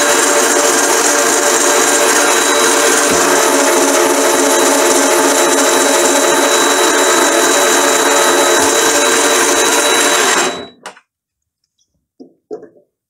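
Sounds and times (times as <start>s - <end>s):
metal lathe whining: 0.0s - 10.8s.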